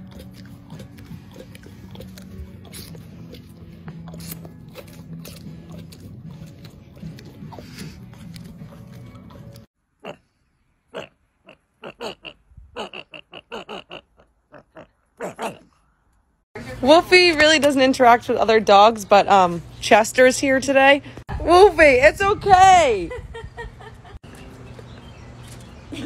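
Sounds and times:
dog gnawing a bone: 0:00.0 - 0:09.7.

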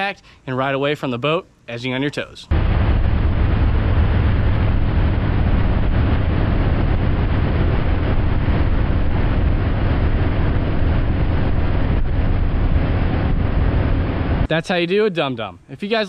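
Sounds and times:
boat engine rumble: 0:02.5 - 0:14.5.

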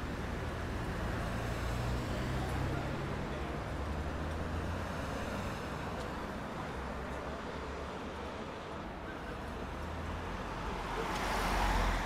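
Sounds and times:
passing vehicles hum: 0:00.0 - 0:07.4.

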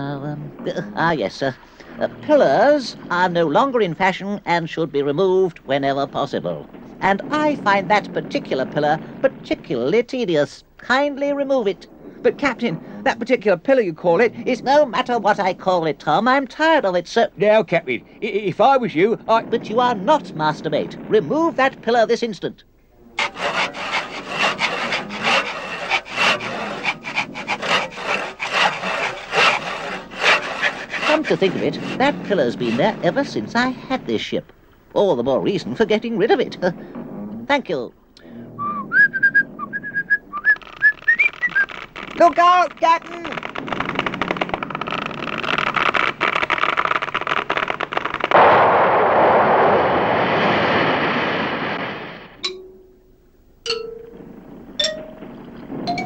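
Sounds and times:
wood cracking and creaking: 0:00.0 - 0:38.3, 0:38.9 - 0:48.5, 0:54.1 - 0:56.0
handsaw sawing through wood: 0:23.2 - 0:33.4
loud crash: 0:48.2 - 0:52.4.

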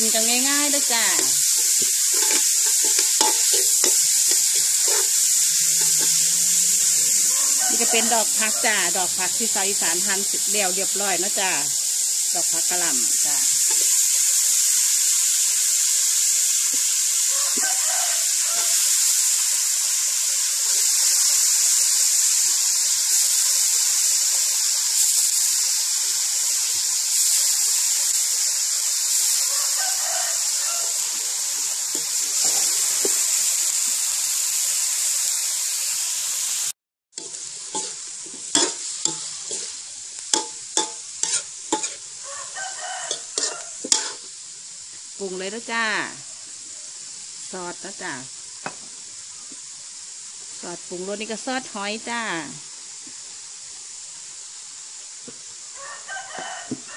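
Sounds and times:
metal spatula scraping a wok: 0:00.0 - 0:09.6, 0:10.3 - 0:19.6, 0:20.6 - 0:34.6, 0:37.2 - 0:44.4
food sizzling in a wok: 0:00.0 - 0:56.9.

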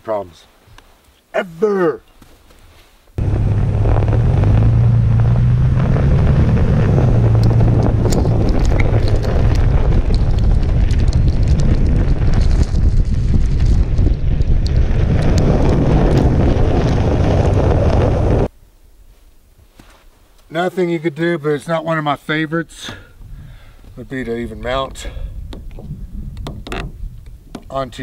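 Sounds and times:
tyre and road noise: 0:03.2 - 0:18.5
wind buffeting microphone: 0:03.2 - 0:18.5, 0:23.2 - 0:28.0.

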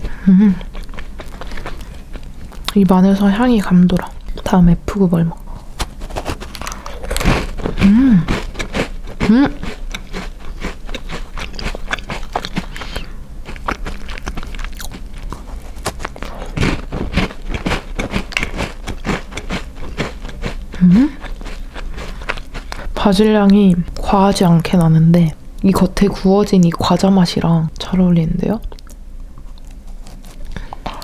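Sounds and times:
person humming: 0:00.0 - 0:00.8, 0:07.7 - 0:08.5, 0:09.2 - 0:09.8, 0:20.7 - 0:21.3
cookie crunching and chewing: 0:00.0 - 0:04.6, 0:05.4 - 0:25.0, 0:28.6 - 0:31.0.

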